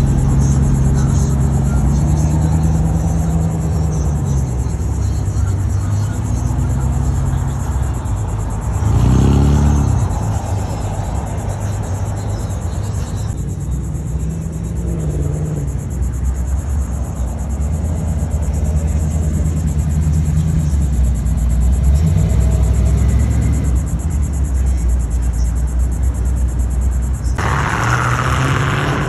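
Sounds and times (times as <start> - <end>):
engine revving: 0.0 - 11.5, 14.0 - 16.0, 17.9 - 24.2, 27.2 - 29.0
pickup truck engines rumbling: 0.0 - 29.0.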